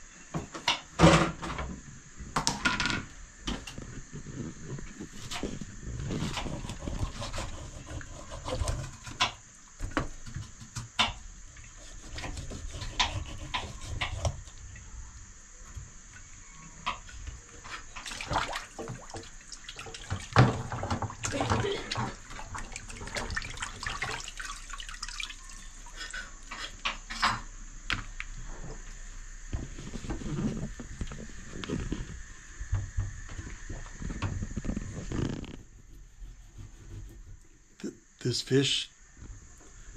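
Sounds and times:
knife scraping fish scales: 11.8 - 14.4
water splashing in sink: 17.8 - 26.2.

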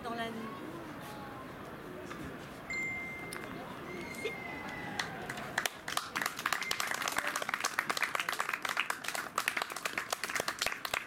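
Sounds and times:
audience applauding: 4.5 - 11.0.

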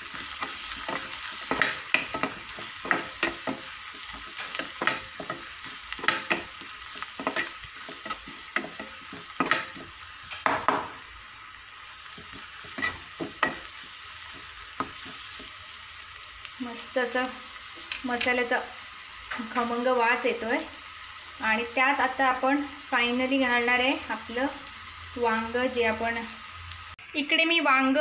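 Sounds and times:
spoon scraping and knocking pan: 0.0 - 11.0, 12.1 - 15.7
masala sizzling in a pan: 0.0 - 28.0.

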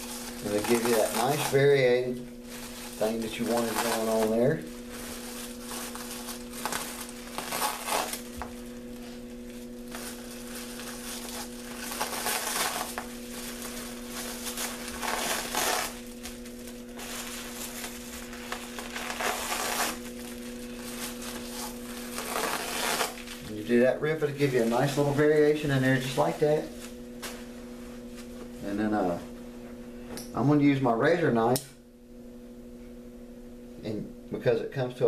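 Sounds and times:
plastic wrap crinkling: 0.0 - 29.3
steady low hum: 0.0 - 35.0.

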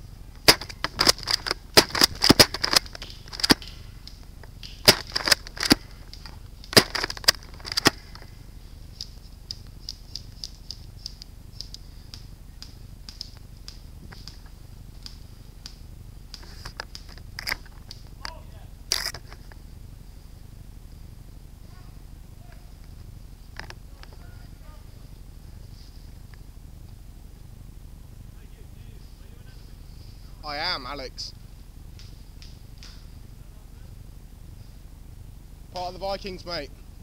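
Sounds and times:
airsoft gunfire: 0.4 - 4.0, 4.6 - 8.4.

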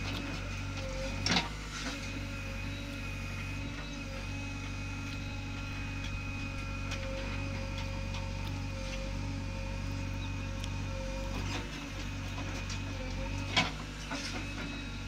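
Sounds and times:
backhoe digging soil: 0.0 - 15.0
diesel engine running under load: 0.0 - 15.0.

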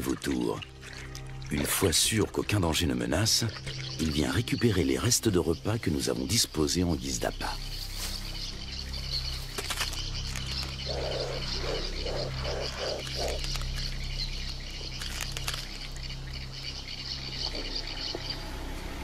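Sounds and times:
low hum: 7.6 - 19.0.

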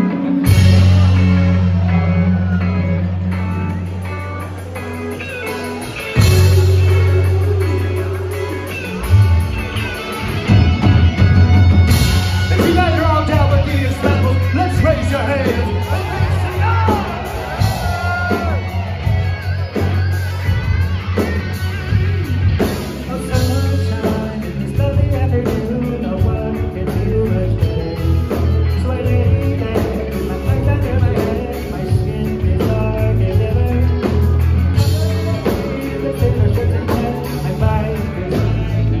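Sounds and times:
live band playing: 0.0 - 39.0
person singing: 22.8 - 39.0.

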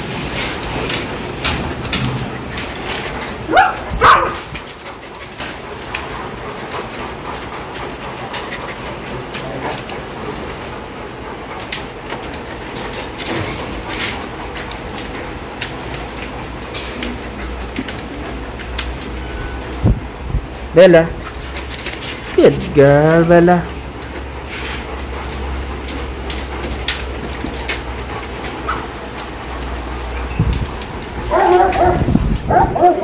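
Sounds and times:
dog barking: 3.5 - 4.5, 31.3 - 33.0.

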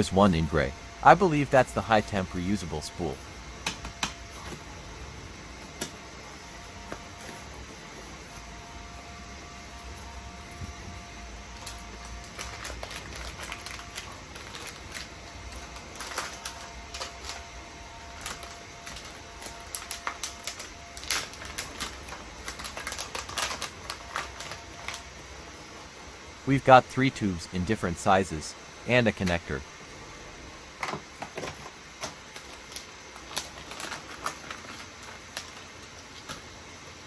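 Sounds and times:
plastic packaging crinkling: 11.6 - 25.2, 30.8 - 36.5.

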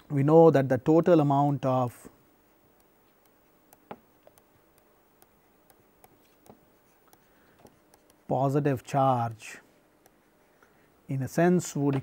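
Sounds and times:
stylus tapping on screen: 2.7 - 8.3.

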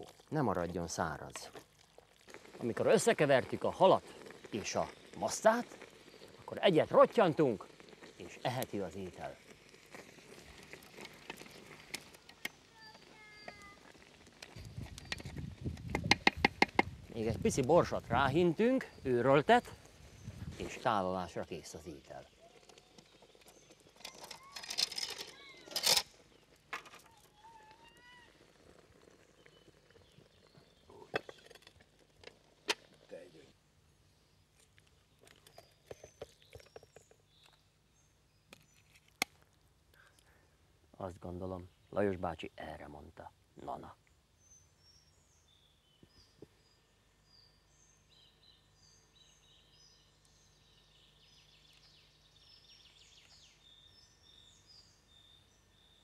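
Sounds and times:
faint meow-like call: 27.0 - 28.5.

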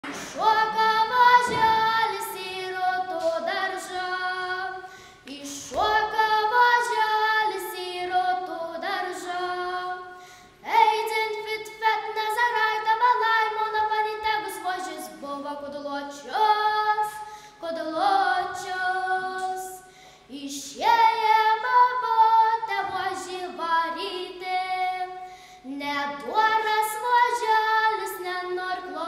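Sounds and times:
girl singing unaccompanied: 0.0 - 29.0
singer breathing: 4.8 - 5.3, 10.1 - 10.6, 17.2 - 17.6, 19.8 - 20.3, 25.2 - 25.7.

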